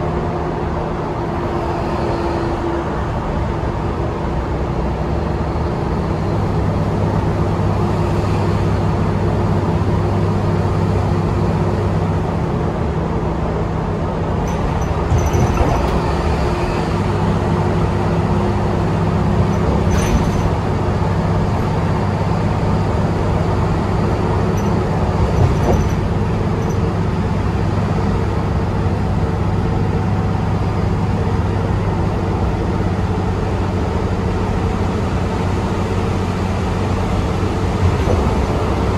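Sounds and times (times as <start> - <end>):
bus drivetrain hum: 0.0 - 38.9
road noise: 0.0 - 38.9
knocks and rattles: 14.4 - 17.4, 18.9 - 23.1, 24.0 - 27.9, 37.6 - 38.9.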